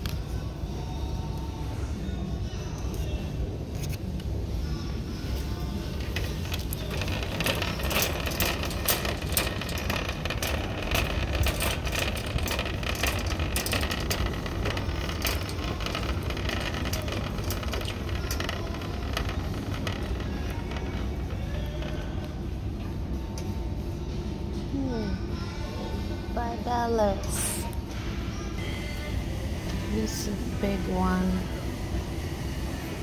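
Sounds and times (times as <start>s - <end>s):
rapid rattling and clicking: 5.9s - 22.4s.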